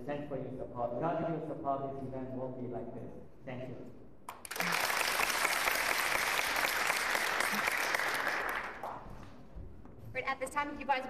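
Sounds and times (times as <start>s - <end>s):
audience applauding: 4.3s - 9.1s.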